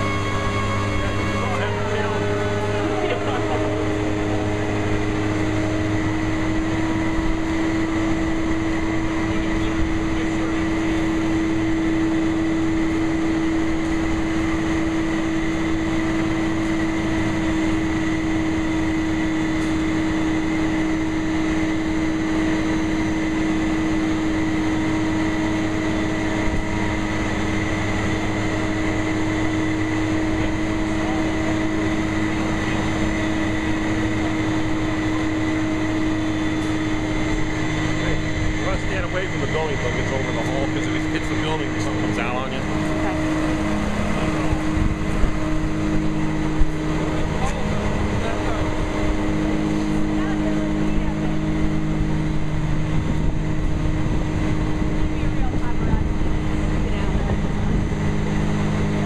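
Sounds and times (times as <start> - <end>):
crane engine whining: 0.0 - 59.0.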